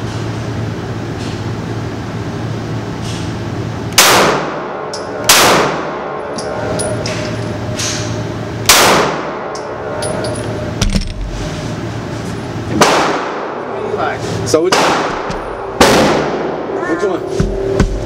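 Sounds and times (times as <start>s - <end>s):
steady low hum: 0.0s - 18.0s
pistol shots: 4.0s - 6.1s, 8.7s - 9.5s, 12.8s - 13.6s, 14.7s - 16.6s.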